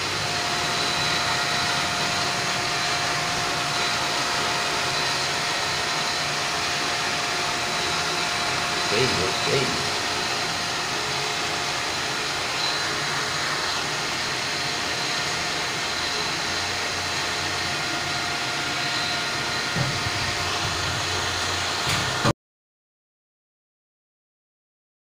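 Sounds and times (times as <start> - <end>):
water pump motor whirr: 0.0 - 22.3.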